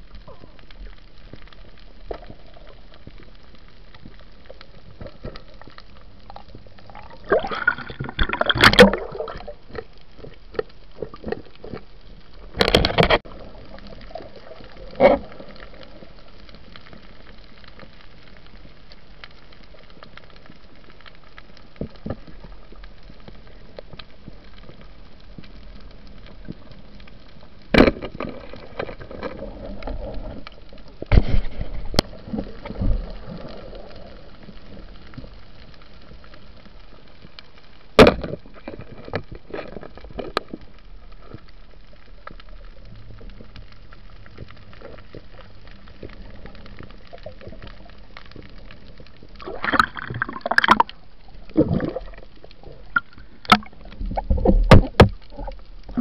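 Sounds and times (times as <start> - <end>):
underwater reef crackle: 0.0 - 56.0
bubbling and knocking bursts: 7.0 - 9.5, 49.4 - 50.9.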